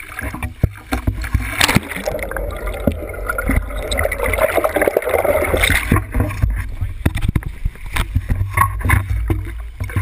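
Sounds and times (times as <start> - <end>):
water rushing and splashing: 0.0 - 9.9
underwater bubbling gurgle: 0.0 - 10.0
low rumble: 1.9 - 7.0.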